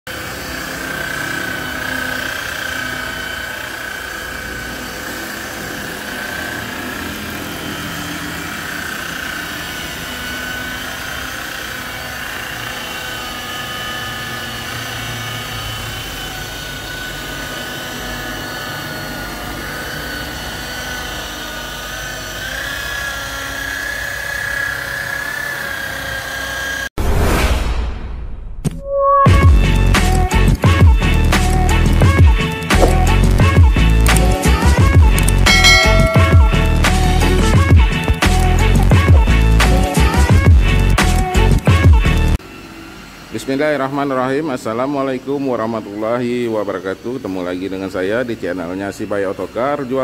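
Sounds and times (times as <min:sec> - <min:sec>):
rotary polisher motor whining: 0:00.1 - 0:26.9, 0:42.4 - 0:50.0.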